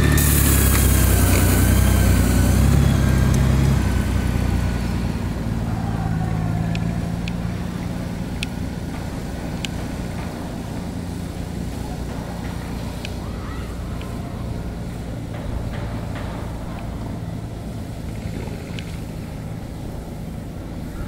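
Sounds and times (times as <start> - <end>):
motorcycle engine low hum: 0.0 - 21.0
faint clicks: 12.1 - 14.2.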